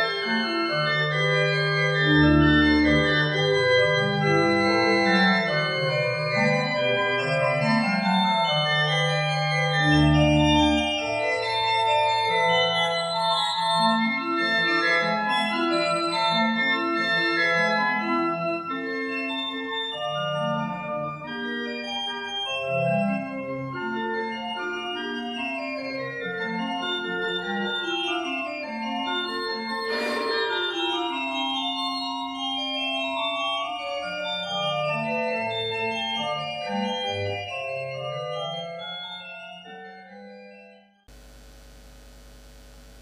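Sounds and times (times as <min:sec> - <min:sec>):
organ playing held chords: 0:00.1 - 0:11.6.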